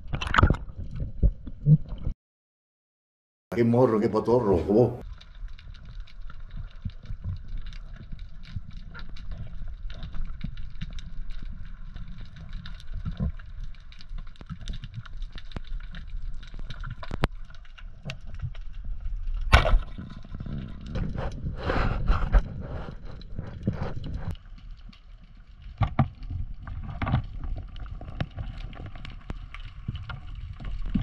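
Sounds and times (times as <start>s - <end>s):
crackle of small clicks: 5.0s - 21.6s, 22.3s - 31.0s
speargun firing crack: 19.5s - 19.8s.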